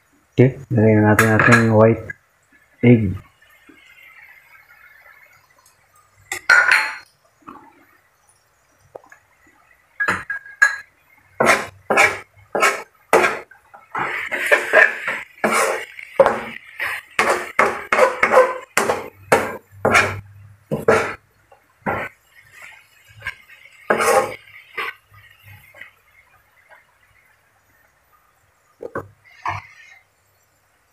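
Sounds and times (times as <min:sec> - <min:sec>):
spatula scraping a wok: 0:11.4 - 0:21.2, 0:21.8 - 0:25.9, 0:29.2 - 0:30.0.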